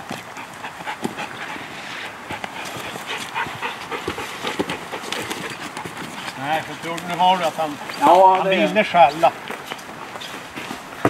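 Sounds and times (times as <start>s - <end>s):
dog whining and panting: 0.2s - 6.4s.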